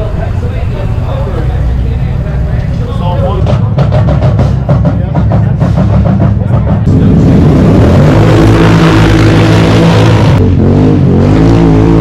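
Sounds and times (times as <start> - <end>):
atv engines revving: 0.0 - 12.0.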